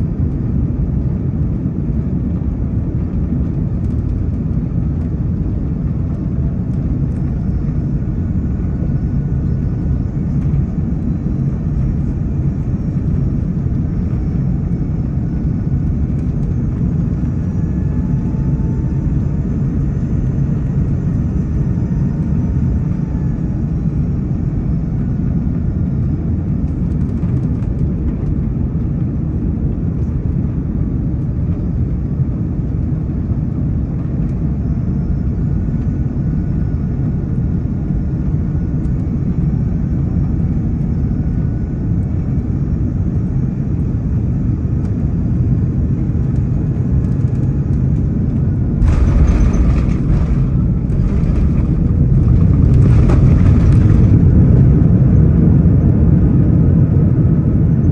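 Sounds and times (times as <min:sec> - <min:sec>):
airliner cabin engine rumble: 0:00.0 - 0:57.9
wheels rolling on runway: 0:48.8 - 0:54.9.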